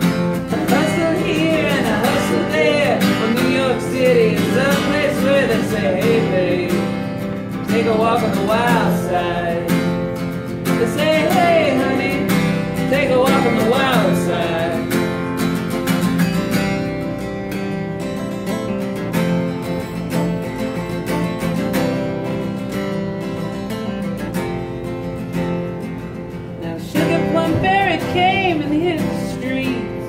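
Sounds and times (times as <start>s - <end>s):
acoustic guitar strummed: 0.0s - 30.0s
person singing wordless melody: 0.4s - 15.2s, 26.6s - 30.0s.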